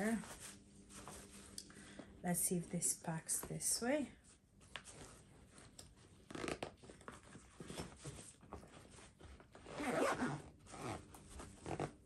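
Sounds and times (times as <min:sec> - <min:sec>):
nylon bag fabric rustling: 0:05.0 - 0:12.0.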